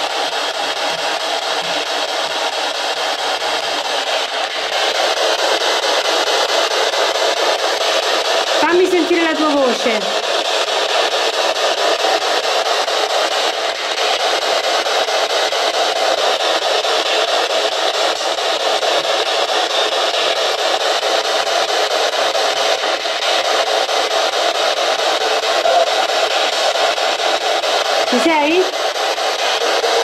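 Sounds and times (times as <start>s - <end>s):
fluttering radio static hiss: 0.0s - 30.0s.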